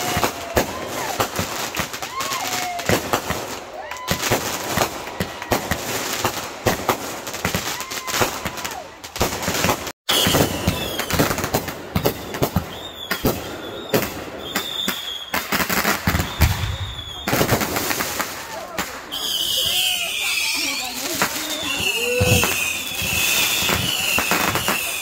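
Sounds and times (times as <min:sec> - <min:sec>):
firework whistle: 0:00.0 - 0:01.3, 0:10.1 - 0:25.0
fireworks bangs and crackling: 0:00.0 - 0:25.0.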